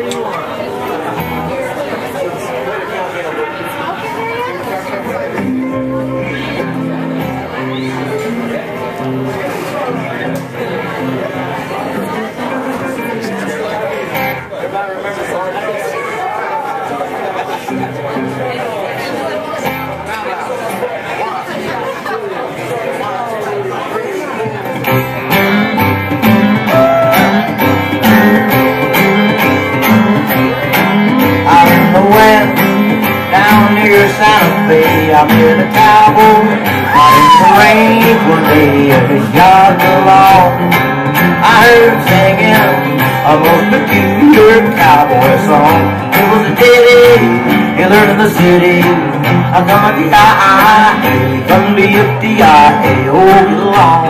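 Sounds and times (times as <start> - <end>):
electric guitar: 4.0 - 14.6, 24.4 - 54.0
acoustic guitar strumming: 4.9 - 14.6, 24.4 - 54.0
upright bass: 5.1 - 13.6, 24.4 - 54.0.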